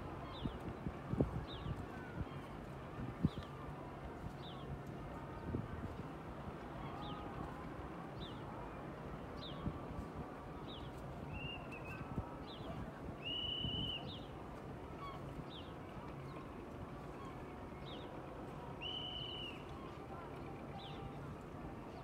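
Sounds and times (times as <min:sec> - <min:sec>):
outdoor background noise: 0:00.0 - 0:22.0.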